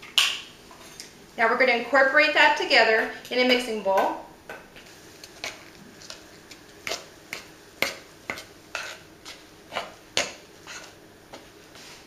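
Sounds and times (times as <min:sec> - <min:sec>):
utensil stirring dough in glass bowl: 0:05.1 - 0:12.0.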